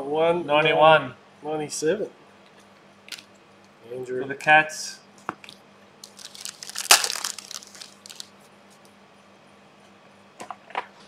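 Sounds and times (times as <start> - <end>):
cards clicking: 6.0 - 8.3
cards rustling: 6.0 - 8.3.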